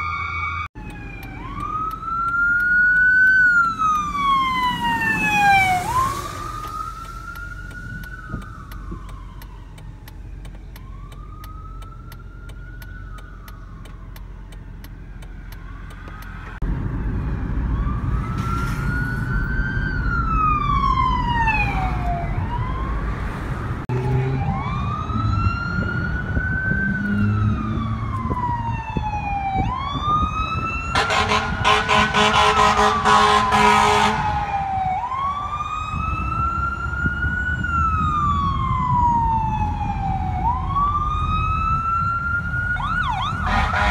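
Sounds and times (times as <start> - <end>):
engine and road rumble: 0.0 - 43.9
fire vehicle sirens wailing: 0.0 - 43.9
vehicle horn blaring: 30.9 - 34.4, 43.4 - 43.9.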